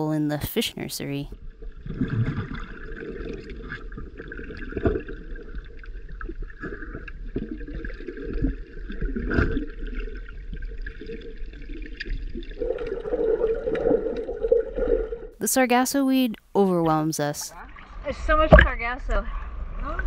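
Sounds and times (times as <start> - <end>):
underwater gurgling and sloshing: 1.2 - 15.4, 17.5 - 20.0.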